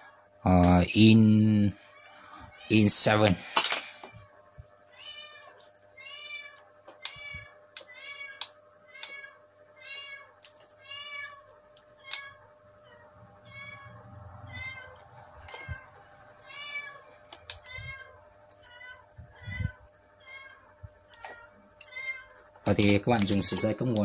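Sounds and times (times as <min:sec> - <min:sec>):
cat meowing: 0:12.0 - 0:17.0, 0:17.6 - 0:20.6, 0:21.2 - 0:22.4
sharp clicks: 0:22.7 - 0:24.0.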